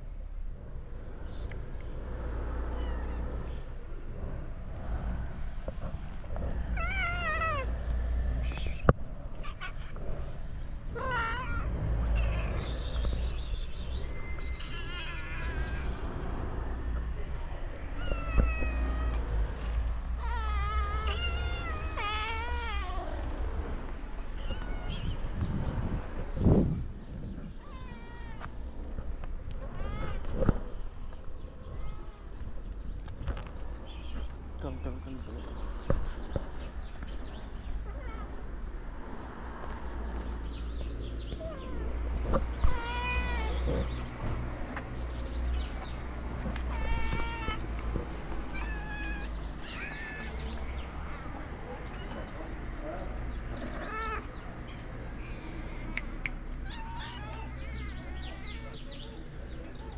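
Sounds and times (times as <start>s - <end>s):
cats meowing: 2.6s - 3.7s, 6.7s - 7.9s, 10.9s - 13.4s, 14.3s - 16.6s, 17.8s - 23.5s, 24.2s - 25.4s, 27.3s - 28.9s, 29.5s - 30.8s, 37.6s - 38.7s, 41.3s - 44.2s, 45.2s - 58.9s.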